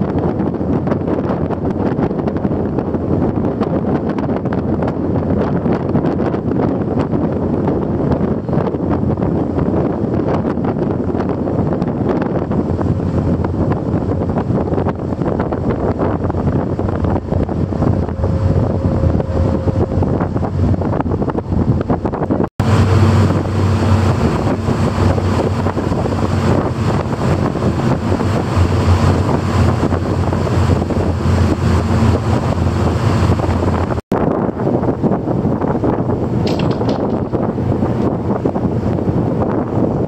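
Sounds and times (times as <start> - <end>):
rushing boat wake: 0.0 - 40.0
wind buffeting microphone: 0.0 - 40.0
engine drone: 11.1 - 40.0.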